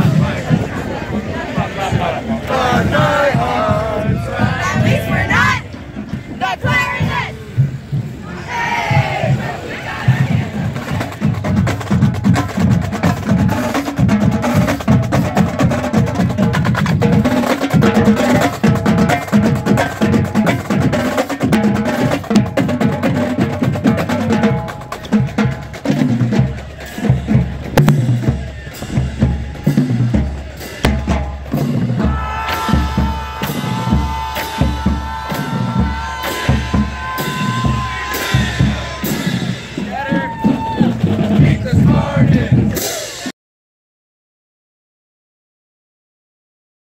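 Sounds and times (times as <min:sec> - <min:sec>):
bass drum hits: 0:27.1 - 0:39.9.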